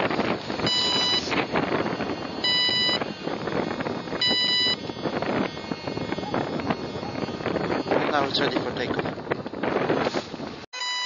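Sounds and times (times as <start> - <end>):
wind on microphone: 0.0 - 10.7
electronic beeps: 0.6 - 1.4, 2.2 - 3.5, 4.1 - 9.0, 10.8 - 11.0.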